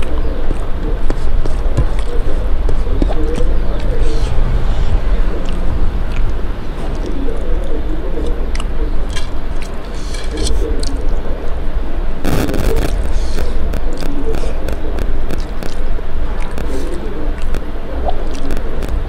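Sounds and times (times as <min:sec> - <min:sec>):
mouth chewing: 0:00.0 - 0:11.7, 0:12.3 - 0:19.0
steady low hum: 0:00.0 - 0:19.0
burst of noise: 0:11.8 - 0:17.7.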